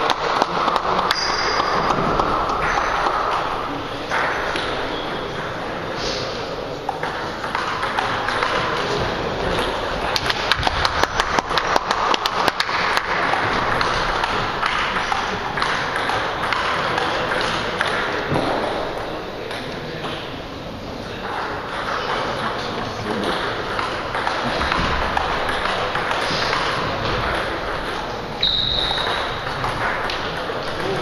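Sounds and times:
sports hall background noise: 0.0 - 31.0
table tennis ball clicking: 6.8 - 18.3.

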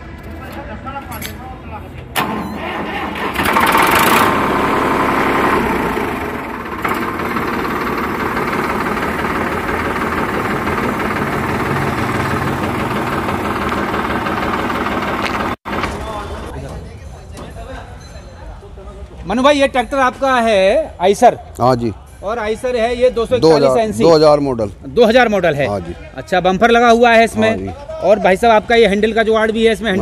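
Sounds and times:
diesel tractor engine idling: 2.2 - 16.4.

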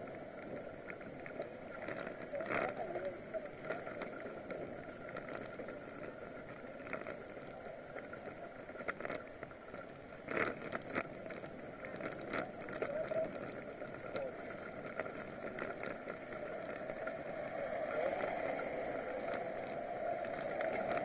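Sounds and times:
bicycle clicks and rattles: 3.6 - 17.3.

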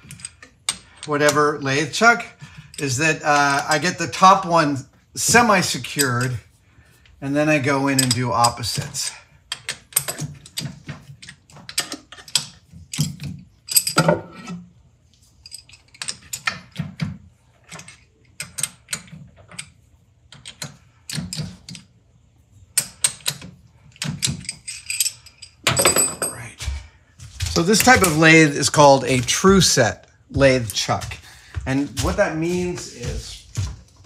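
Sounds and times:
metallic clicks and clinks: 0.0 - 1.4, 22.8 - 26.5.

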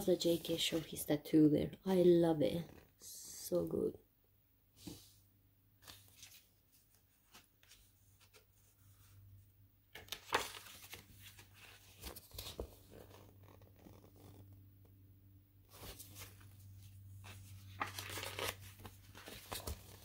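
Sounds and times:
page turn swish: 5.8 - 6.5, 15.7 - 16.5, 17.2 - 20.0
paper pages rustling: 5.8 - 9.2, 9.9 - 14.5, 15.7 - 20.0.

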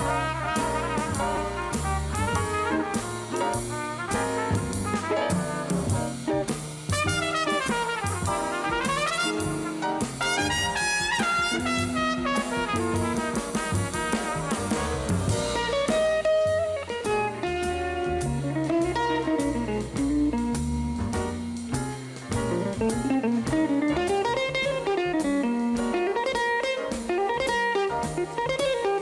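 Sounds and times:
brass horn solo: 0.0 - 5.9, 6.9 - 16.4
upright bass line: 0.0 - 26.2
drum kit with cymbals: 0.0 - 29.0
electric guitar: 8.3 - 29.0.

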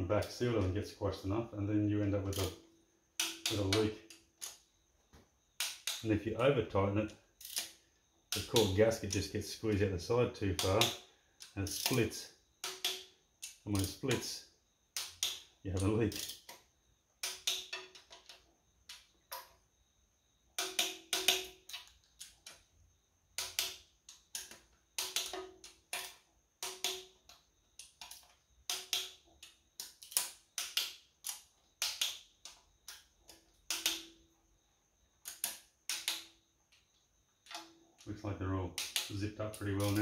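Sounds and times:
torque wrench clicking: 3.2 - 4.6, 5.6 - 6.1, 7.4 - 9.3, 10.5 - 16.6, 17.2 - 19.5, 20.6 - 22.6, 23.4 - 34.2, 35.2 - 36.3, 38.8 - 40.0.

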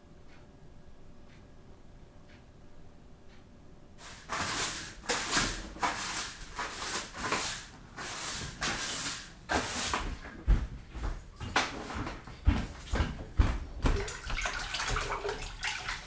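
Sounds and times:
rough scrubbing strokes: 4.0 - 10.2.

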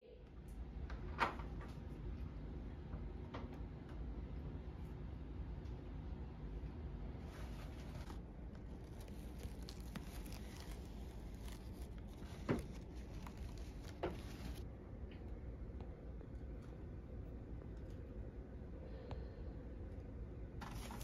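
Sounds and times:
low steady rumble: 0.1 - 21.0
artificial flowers rustling: 7.2 - 14.7, 20.6 - 21.0.

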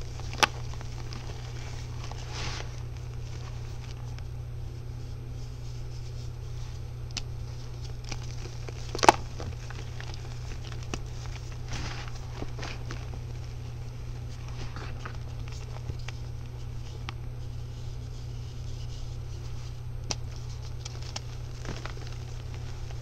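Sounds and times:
powder block crunching in hands: 0.0 - 4.2, 7.1 - 16.3, 20.1 - 23.0
steady low hum: 0.0 - 23.0.

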